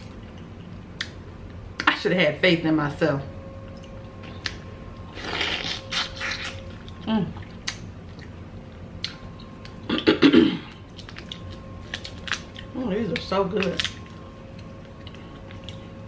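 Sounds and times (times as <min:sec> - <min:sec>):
wet chewing: 0:03.6 - 0:09.9, 0:10.7 - 0:16.0.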